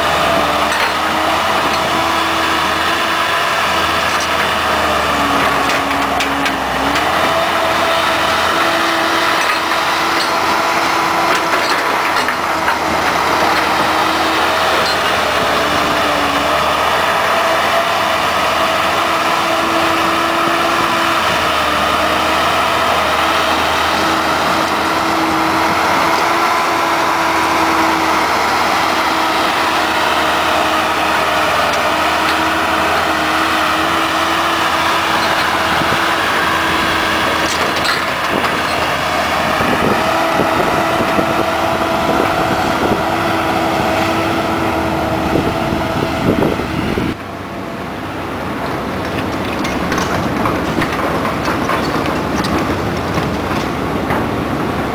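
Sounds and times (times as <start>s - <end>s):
track loader diesel engine: 0.0s - 54.9s
knocks and clatter: 3.8s - 16.4s, 31.3s - 41.3s, 48.6s - 54.9s.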